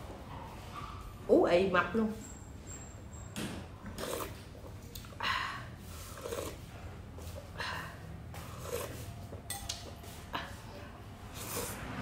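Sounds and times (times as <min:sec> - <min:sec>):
person slurping noodles: 0:03.9 - 0:09.4, 0:11.2 - 0:12.0
soft chewing: 0:05.9 - 0:07.6, 0:08.3 - 0:11.8.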